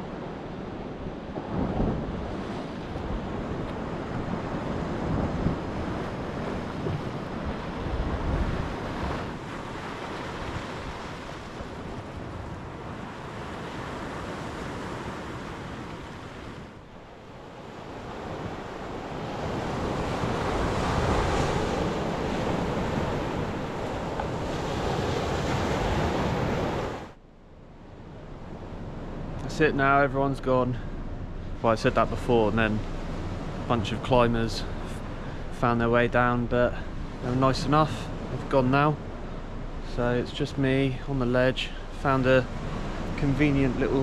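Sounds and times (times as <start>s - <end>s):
wind buffeting microphone: 0.0s - 27.2s.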